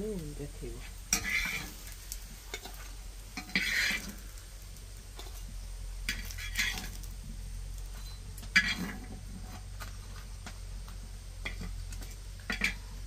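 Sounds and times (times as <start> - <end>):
spatula scraping iron pan: 0.8 - 4.2, 6.1 - 7.0, 8.4 - 9.9, 12.4 - 12.8.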